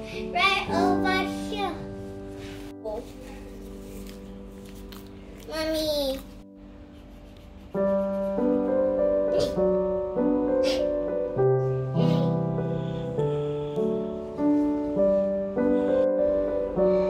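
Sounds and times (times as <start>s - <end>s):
gentle solo piano piece: 7.8s - 17.0s.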